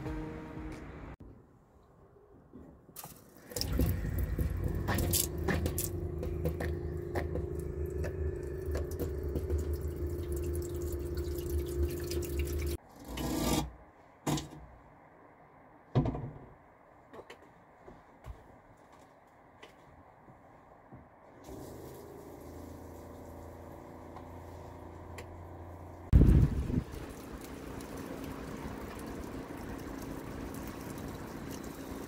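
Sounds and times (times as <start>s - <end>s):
tap water running into sink: 3.4s - 12.8s, 26.6s - 32.0s
steady low hum: 3.6s - 12.8s.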